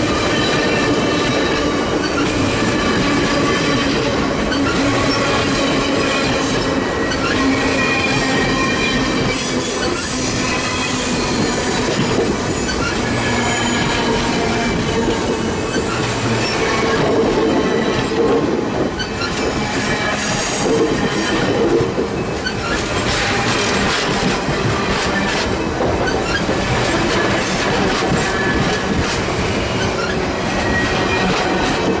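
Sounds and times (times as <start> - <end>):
train wheels clacking over rail joints: 0.0 - 32.0
high wheel squeals: 4.4 - 18.1, 22.2 - 23.0.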